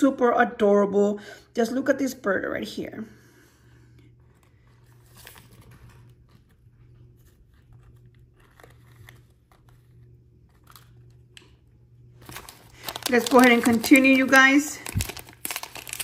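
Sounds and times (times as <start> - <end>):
paper wrapper crinkling: 4.3 - 11.6, 12.2 - 16.0.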